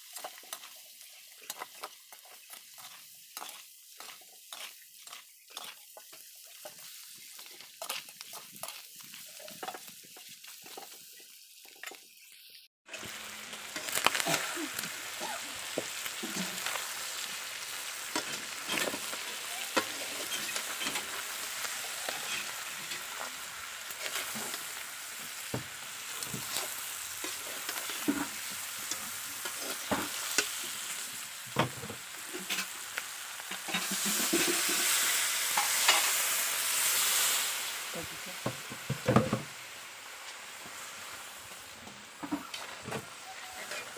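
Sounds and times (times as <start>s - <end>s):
food sizzling in a wok: 0.0s - 43.9s
metal spatula scraping a pan: 0.1s - 11.0s, 16.1s - 24.8s, 26.2s - 31.0s, 32.2s - 32.8s, 33.5s - 36.3s
water poured into hot pan: 9.1s - 39.9s.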